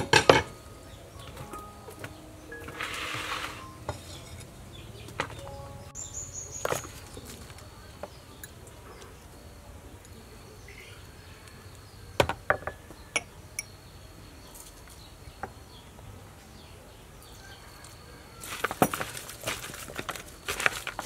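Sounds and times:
high insect chirr: 0:00.4 - 0:15.8.

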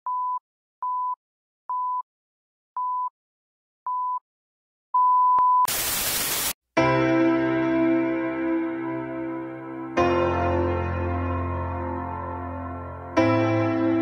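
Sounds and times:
loud static hiss: 0:05.7 - 0:06.6.

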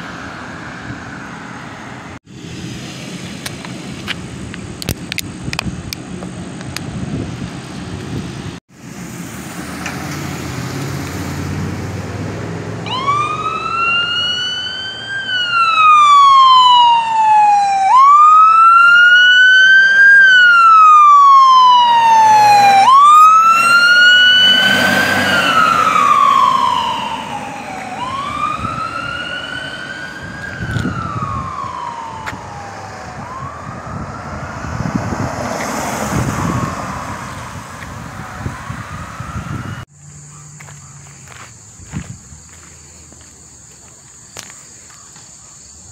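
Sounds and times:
emergency siren wailing: 0:00.0 - 0:02.2, 0:10.3 - 0:39.9
passing car engine and tyres: 0:00.0 - 0:45.8
siren rapid yelps: 0:12.8 - 0:39.9.

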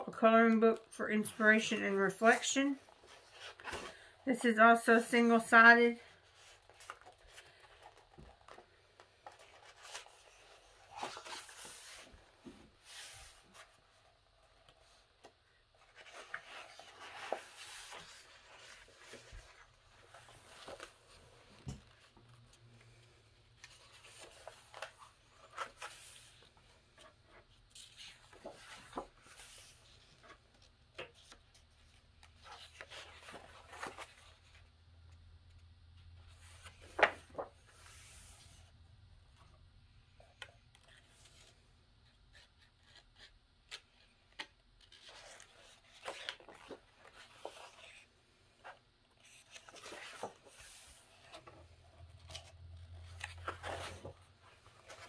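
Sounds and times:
paper pages turning: 0:06.1 - 0:23.0, 0:23.6 - 0:34.7, 0:36.3 - 0:38.6, 0:42.3 - 0:55.0.

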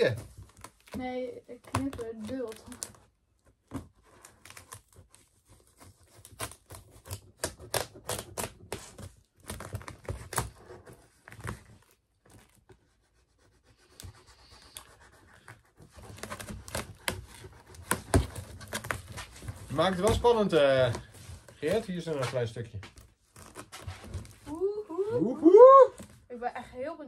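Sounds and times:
knife cutting packing tape: 0:03.8 - 0:12.8, 0:13.8 - 0:21.8.

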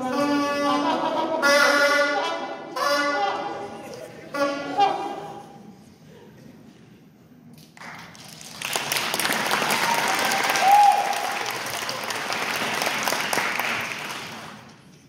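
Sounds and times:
audience applauding: 0:07.8 - 0:14.8.

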